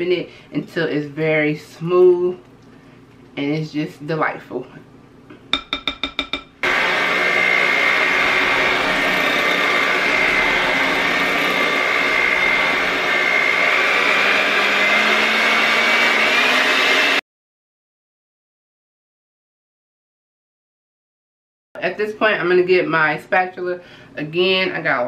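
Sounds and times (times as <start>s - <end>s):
electric hand mixer whining: 6.6s - 17.2s.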